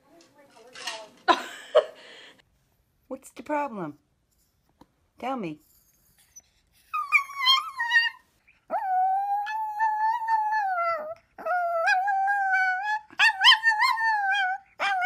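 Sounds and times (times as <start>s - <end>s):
dog howling: 7.1s - 15.0s.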